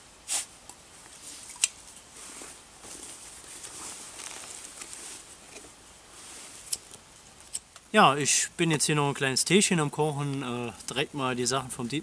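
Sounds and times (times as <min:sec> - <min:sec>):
hands rustling packaging: 0:02.2 - 0:05.4.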